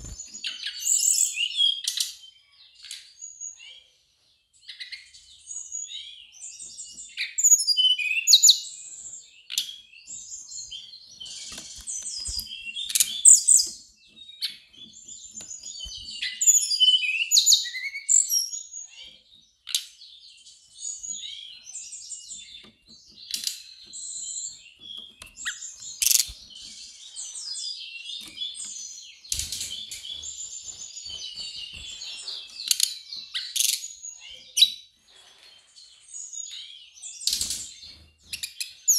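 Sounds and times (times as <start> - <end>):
bird singing chirps and trills: 0.0 - 38.9.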